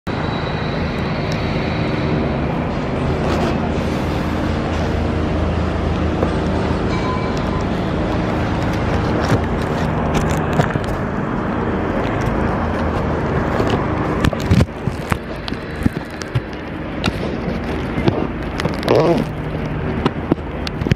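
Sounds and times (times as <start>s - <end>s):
city road traffic: 0.0s - 20.9s
vehicle engine running: 0.1s - 20.9s
sharp clicks and knocks: 12.0s - 20.9s.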